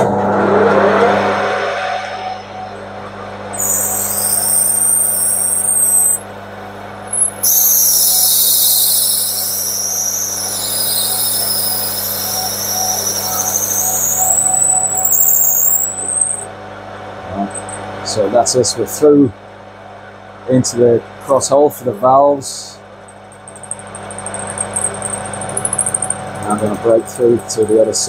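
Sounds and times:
drill screeching into brass: 0:03.6 - 0:06.2, 0:07.1 - 0:16.5, 0:23.5 - 0:27.8.

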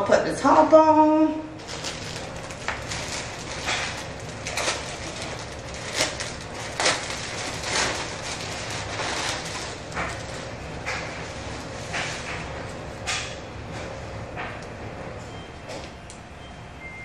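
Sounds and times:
plastic bag crinkling: 0:01.6 - 0:11.9.

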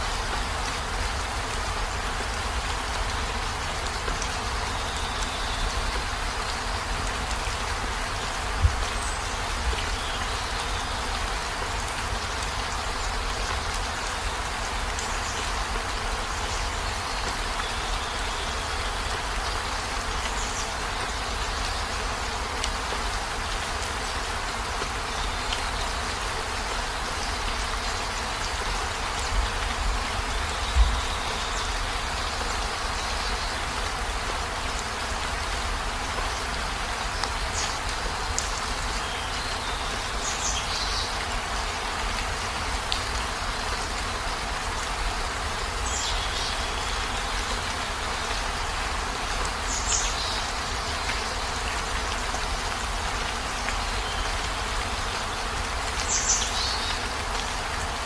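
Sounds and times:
heavy rain: 0:00.0 - 0:58.0.

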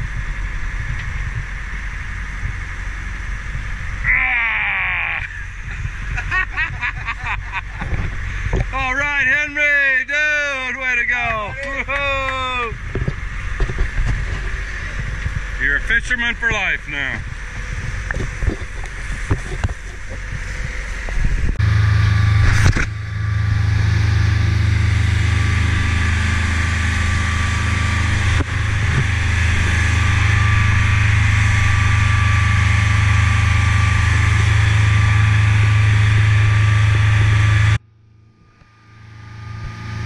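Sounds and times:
boat engine humming: 0:00.0 - 0:40.0.

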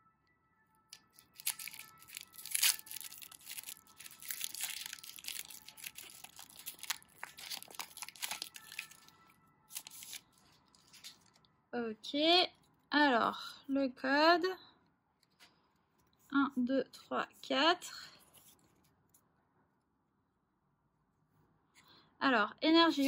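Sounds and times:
foil wrapper crinkling: 0:01.0 - 0:11.4
foil pack tearing: 0:01.2 - 0:09.1, 0:09.7 - 0:10.2.

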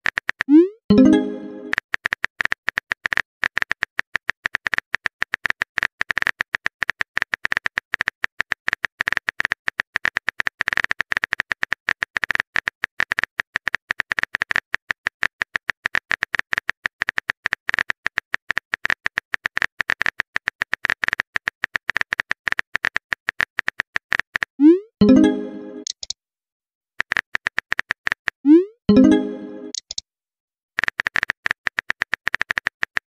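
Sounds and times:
keyboard typing clicks: 0:00.9 - 0:02.2, 0:22.8 - 0:26.2, 0:28.9 - 0:30.0.

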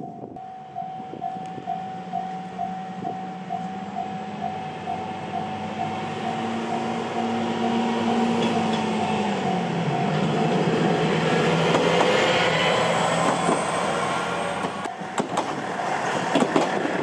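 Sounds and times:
level-crossing electronic bell: 0:00.0 - 0:11.1
diesel railcar engine hum: 0:00.0 - 0:17.0
rail noise: 0:00.0 - 0:17.0.

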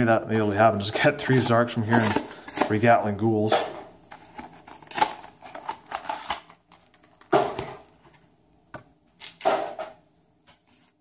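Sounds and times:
card packaging crinkling and tearing: 0:00.8 - 0:03.3, 0:04.1 - 0:07.3, 0:09.2 - 0:09.6.

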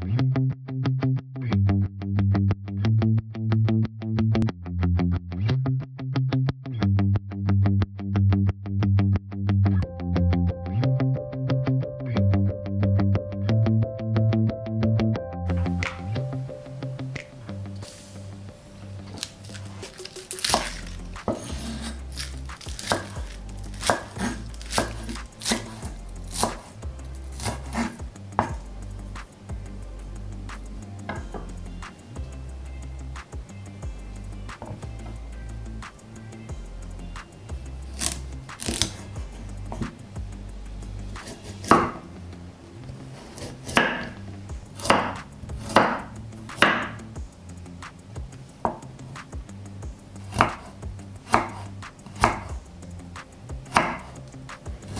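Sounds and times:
knife chopping on wooden board: 0:19.1 - 0:26.8, 0:27.4 - 0:28.7, 0:34.6 - 0:34.9, 0:37.9 - 0:40.0, 0:41.2 - 0:42.0, 0:43.2 - 0:44.2, 0:44.8 - 0:47.0, 0:50.3 - 0:50.7, 0:51.3 - 0:52.6, 0:53.7 - 0:54.2.

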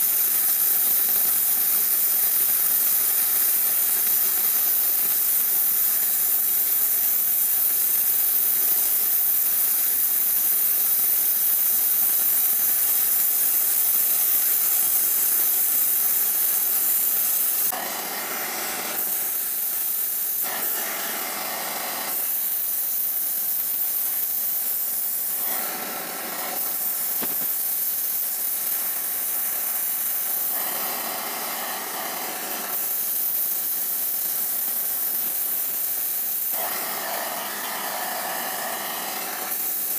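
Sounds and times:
flame-spray torch hissing: 0:00.0 - 0:39.9.

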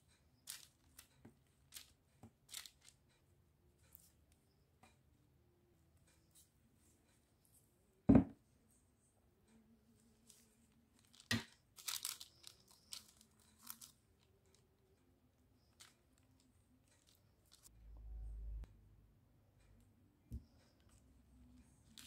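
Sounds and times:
crinkling paper and plastic glove: 0:00.4 - 0:03.1, 0:10.1 - 0:14.8, 0:15.6 - 0:17.7.

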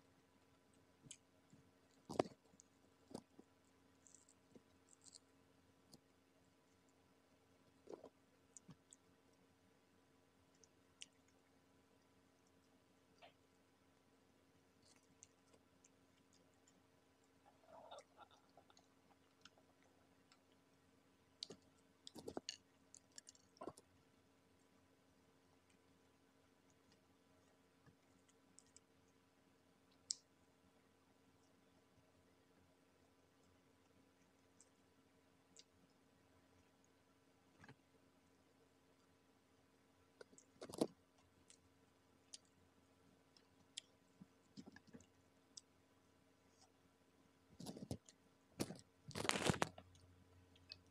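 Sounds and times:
crispy coating crackling: 0:47.6 - 0:50.9.

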